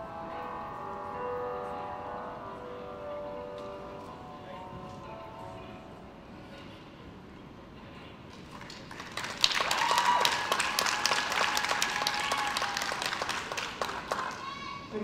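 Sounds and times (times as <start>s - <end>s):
audience applause: 8.3s - 14.7s.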